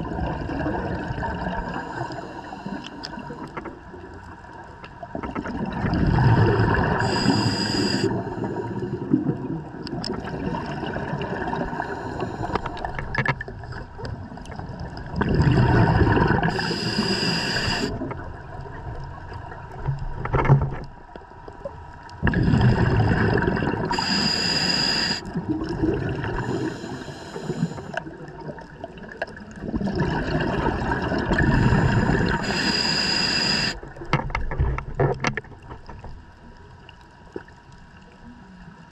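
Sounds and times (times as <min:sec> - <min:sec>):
diver breathing through regulator: 0:01.7 - 0:03.6, 0:06.5 - 0:09.2, 0:11.7 - 0:13.0, 0:15.5 - 0:18.1, 0:22.3 - 0:25.4, 0:26.2 - 0:28.1, 0:31.3 - 0:33.8
bubbling exhaust rumble: 0:05.4 - 0:07.2, 0:13.9 - 0:16.5, 0:22.2 - 0:24.0.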